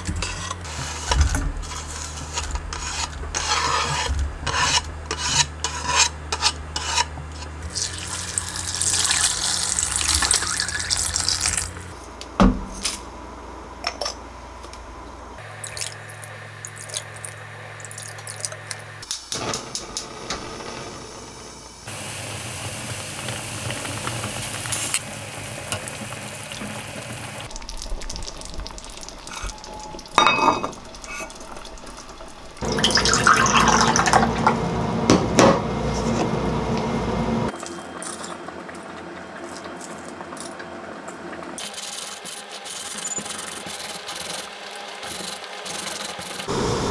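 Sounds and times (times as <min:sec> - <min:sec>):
water running: 0:07.7 - 0:12.0, 0:21.9 - 0:35.1
pot and utensils clinking: 0:29.3 - 0:31.6
tea pouring into a glass: 0:32.6 - 0:34.3.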